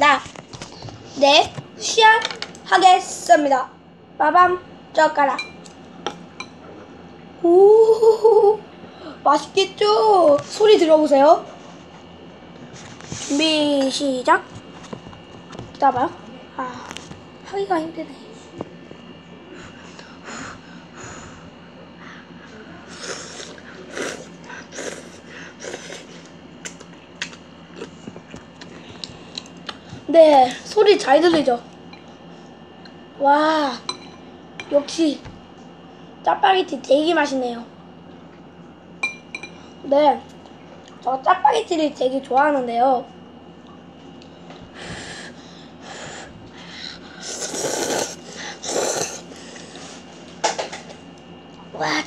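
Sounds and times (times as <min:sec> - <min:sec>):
child slurping and chewing: 0:22.9 - 0:26.3, 0:47.2 - 0:49.6.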